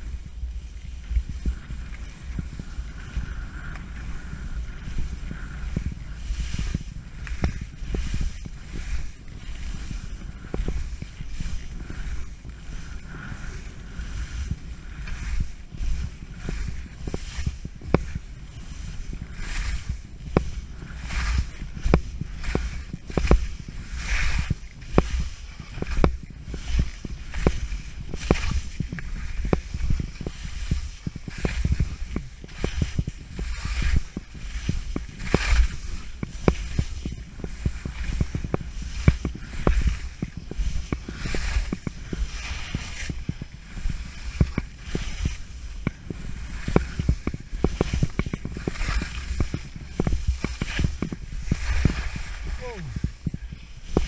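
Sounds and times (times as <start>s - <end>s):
skis scraping through snow: 0.0s - 54.0s
wind rumble on microphone: 0.0s - 54.0s.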